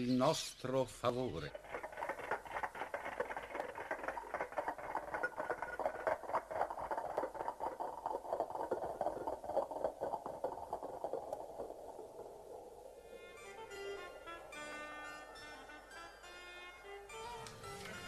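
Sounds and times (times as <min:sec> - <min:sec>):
group footsteps pattering: 0:01.4 - 0:12.4.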